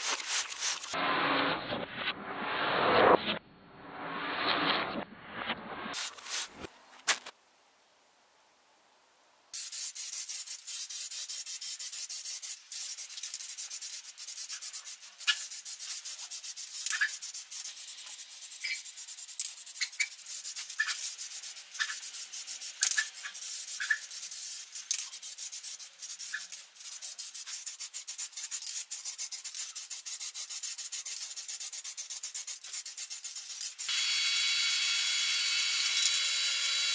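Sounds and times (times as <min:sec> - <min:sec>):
spray paint hissing: 0:00.0 - 0:01.0, 0:05.9 - 0:06.7, 0:09.6 - 0:34.0
small ticks: 0:22.8 - 0:24.1.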